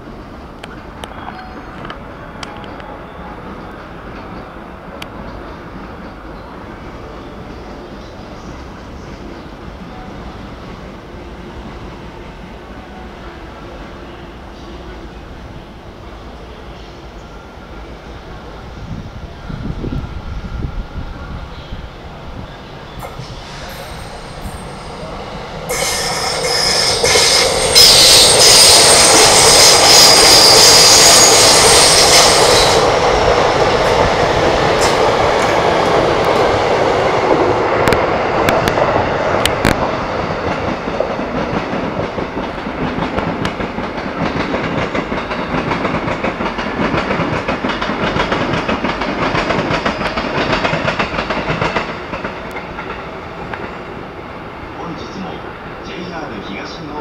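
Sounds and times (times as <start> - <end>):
train cars rumbling past: 0.0 - 57.0
rail joint clicks: 0.4 - 6.6, 22.5 - 53.9
train wheels squealing: 19.3 - 34.0.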